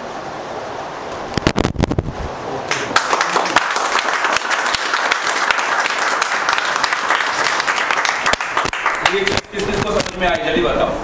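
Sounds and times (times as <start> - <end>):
crowd applauding: 2.7 - 9.7.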